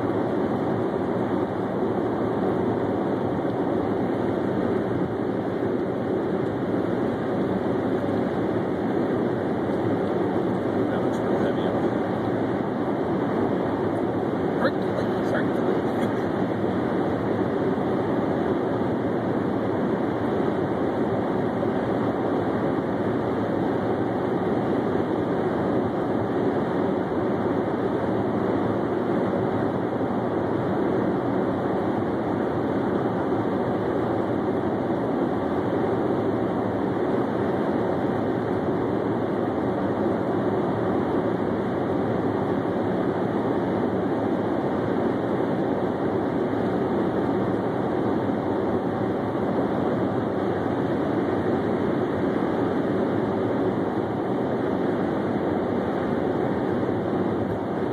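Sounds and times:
car engine hum: 0:00.0 - 0:26.6.

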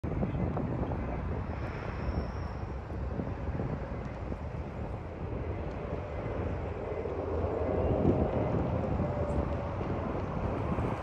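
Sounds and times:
distant jet engines rumbling: 0:00.0 - 0:11.0
jet engine whine: 0:00.0 - 0:11.0
wind buffeting microphone: 0:00.0 - 0:11.0.

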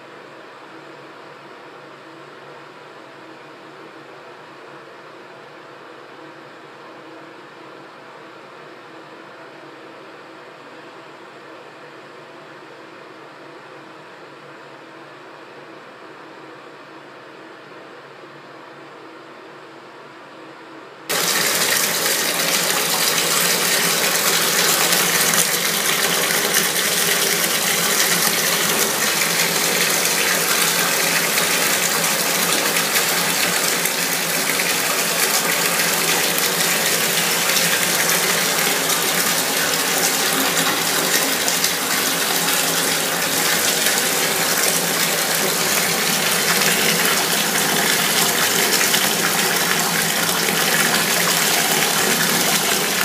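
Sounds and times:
water running from tap into tub: 0:21.1 - 0:53.0.

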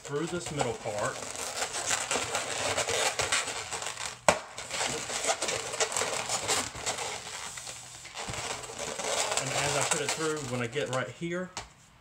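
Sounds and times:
balloons rubbing crackly: 0:00.0 - 0:11.2
balloon snap: 0:04.1 - 0:05.0.

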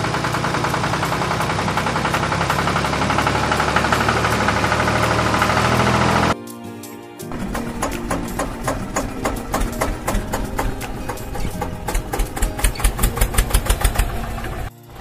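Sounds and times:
tractor engine chugging: 0:00.0 - 0:06.4, 0:07.3 - 0:15.0.

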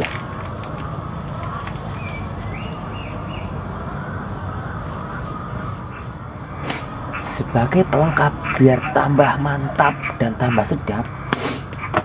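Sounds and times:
bird chirps: 0:00.0 - 0:09.2
insect drone: 0:00.0 - 0:12.0.

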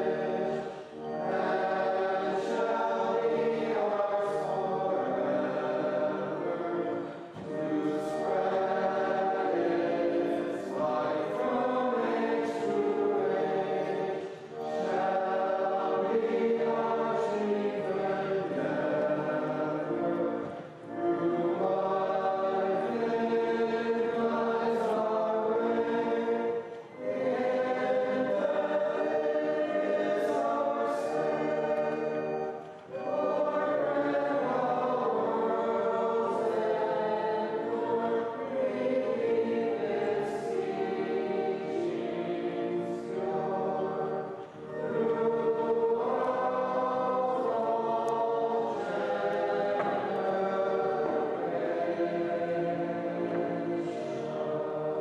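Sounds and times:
choir singing: 0:00.0 - 0:55.0.

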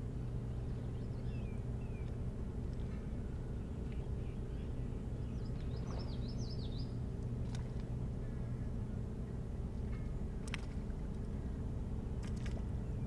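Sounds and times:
steady low hum: 0:00.0 - 0:13.0
songbird chirping: 0:00.2 - 0:07.8.

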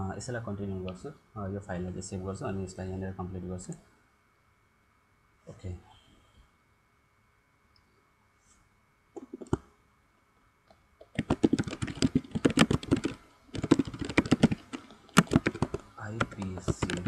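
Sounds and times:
typing on computer keyboard: 0:09.2 - 0:09.6, 0:11.0 - 0:17.0.

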